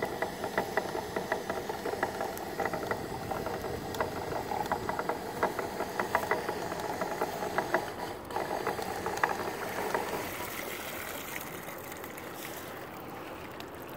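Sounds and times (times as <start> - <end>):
pot puller clicking and rattling: 0.0 - 10.6
water splashing and streaming: 7.8 - 13.9.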